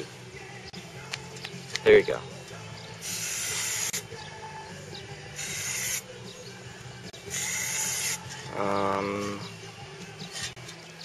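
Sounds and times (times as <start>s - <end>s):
spray paint can hissing: 3.0s - 4.0s, 5.4s - 6.1s, 7.3s - 8.4s.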